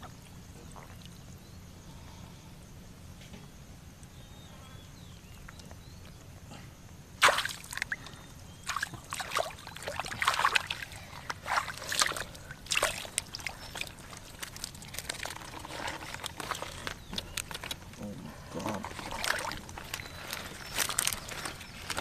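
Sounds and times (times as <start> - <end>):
shallow water splashing: 7.2 - 17.8, 18.6 - 22.0.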